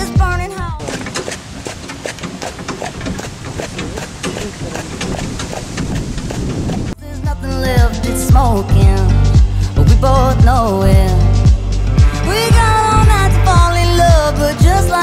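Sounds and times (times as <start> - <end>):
cart wheels rolling on gravel: 0.8 - 7.0
horse hooves clip-clopping: 0.8 - 7.0.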